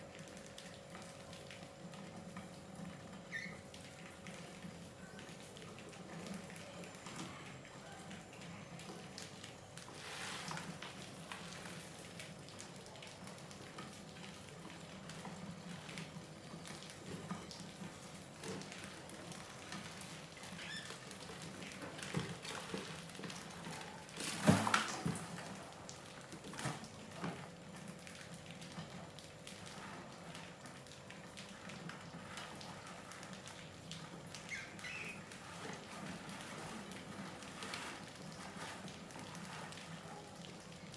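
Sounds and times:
mice scrabbling and pattering: 0:18.4 - 0:25.2.

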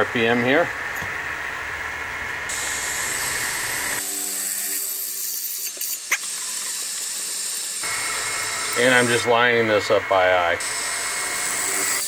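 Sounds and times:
milling machine drilling aluminum: 0:02.5 - 0:12.0.

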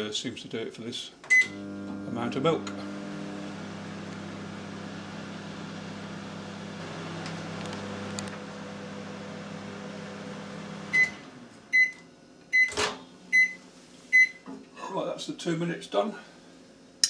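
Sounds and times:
microwave beeps: 0:01.3 - 0:02.7, 0:10.8 - 0:14.4
microwave oven humming: 0:01.3 - 0:14.4.

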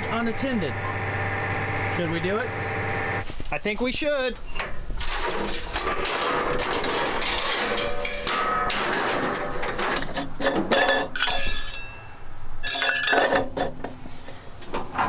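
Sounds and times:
rustling noise: 0:03.2 - 0:04.0
metallic clinks and clanks: 0:06.0 - 0:12.0, 0:12.6 - 0:13.8.

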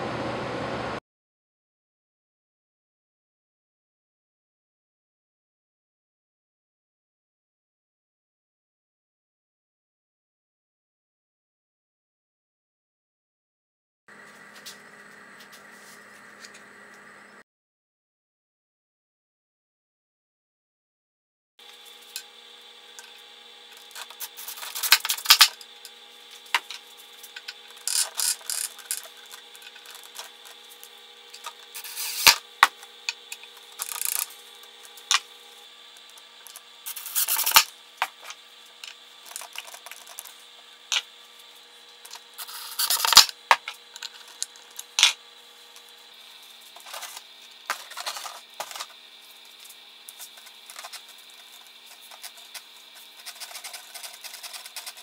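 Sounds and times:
rubbing and scraping on wood: 0:26.3 - 0:32.4, 0:42.4 - 0:43.3, 0:50.2 - 0:55.0.

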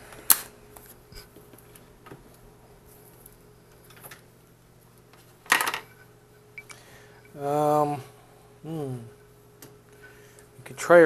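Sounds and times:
small hard parts clattering: 0:05.5 - 0:06.0.

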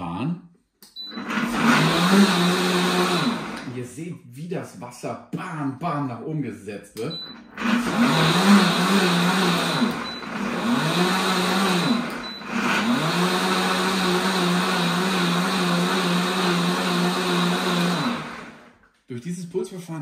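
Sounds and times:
blender motor running: 0:01.0 - 0:03.8, 0:07.4 - 0:18.8.

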